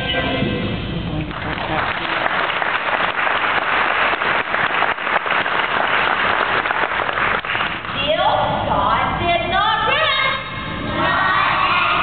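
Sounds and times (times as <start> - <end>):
audience applauding: 1.3 - 8.0.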